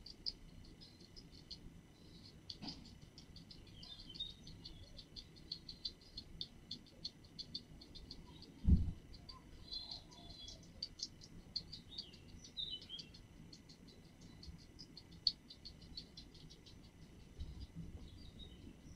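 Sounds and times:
guinea pig chewing: 0:00.0 - 0:18.9.

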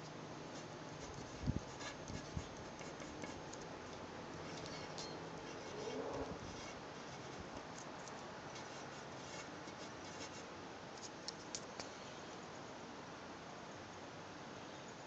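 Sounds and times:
pen nib scratching on paper: 0:01.0 - 0:03.5.

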